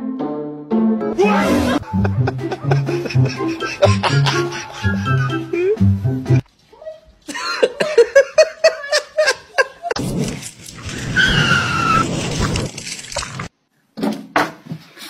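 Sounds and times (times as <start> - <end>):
person laughing: 1.4 - 5.9, 7.3 - 10.0.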